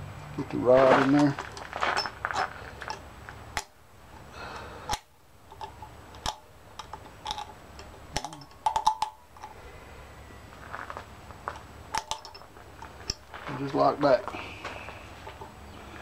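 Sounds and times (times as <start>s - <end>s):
metal parts clicking: 3.6s - 9.6s, 10.8s - 13.4s.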